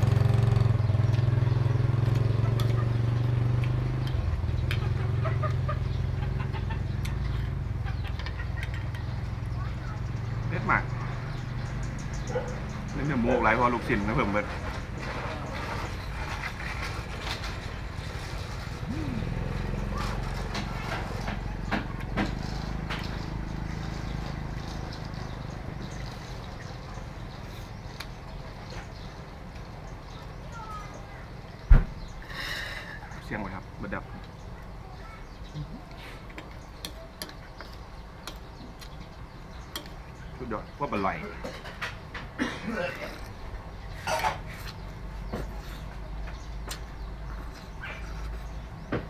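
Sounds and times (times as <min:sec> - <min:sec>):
small engine idling: 0:00.0 - 0:10.7, 0:11.3 - 0:29.2
small chirping calls: 0:00.5 - 0:13.6, 0:21.0 - 0:41.3.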